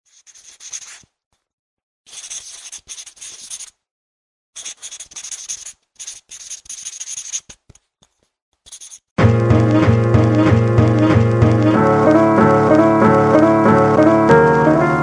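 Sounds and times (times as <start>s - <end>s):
pen scratching on paper: 0.1s - 1.1s, 2.1s - 3.8s, 4.6s - 7.6s, 8.7s - 9.0s.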